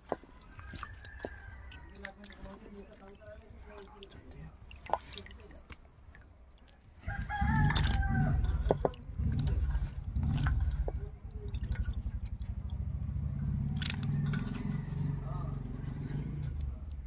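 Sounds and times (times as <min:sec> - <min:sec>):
wet clicks and drips: 0:00.0 - 0:17.0
rooster crowing: 0:00.5 - 0:02.0, 0:07.0 - 0:08.9, 0:14.0 - 0:16.4
low rumbling noise: 0:07.0 - 0:17.0.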